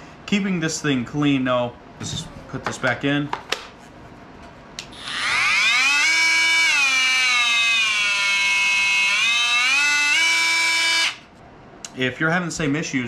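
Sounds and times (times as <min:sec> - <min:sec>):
multi-tool motor whine: 0:04.9 - 0:11.3.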